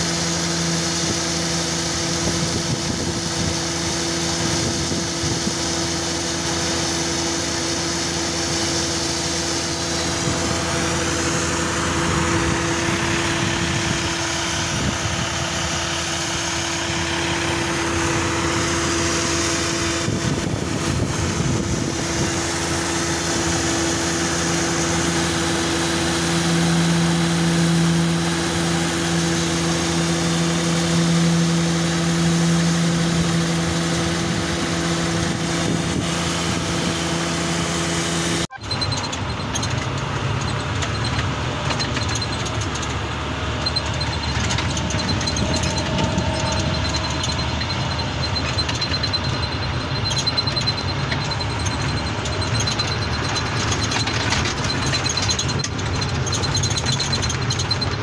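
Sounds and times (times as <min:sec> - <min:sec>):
vacuum truck running: 0:00.0 - 0:58.0
low hum: 0:43.0 - 0:53.4.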